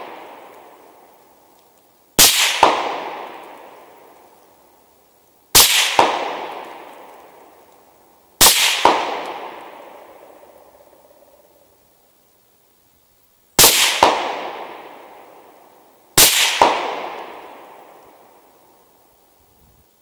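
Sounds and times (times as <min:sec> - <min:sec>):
rolling echo of gunshots: 0:00.0 - 0:00.9, 0:02.2 - 0:04.2, 0:05.6 - 0:07.4, 0:08.4 - 0:10.7, 0:13.6 - 0:15.5, 0:16.2 - 0:18.4
rifle shots: 0:02.2 - 0:03.9, 0:05.6 - 0:07.3, 0:08.4 - 0:10.5, 0:13.6 - 0:15.2, 0:16.2 - 0:18.0.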